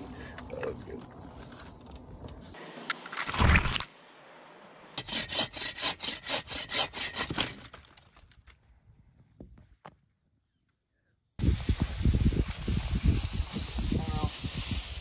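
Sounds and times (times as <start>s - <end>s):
hand saw cutting branch: 5.0s - 7.7s.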